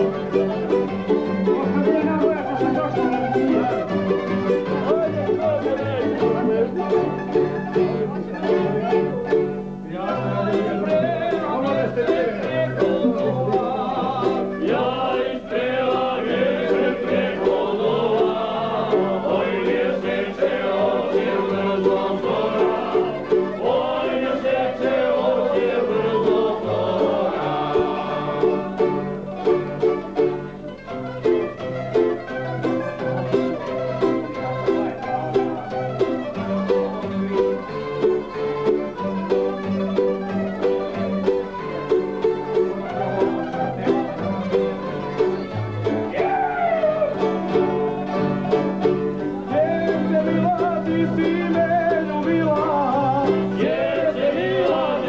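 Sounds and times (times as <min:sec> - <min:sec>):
plucked string folk ensemble: 0:00.0 - 0:55.0
people singing along: 0:09.8 - 0:29.4, 0:46.1 - 0:55.0.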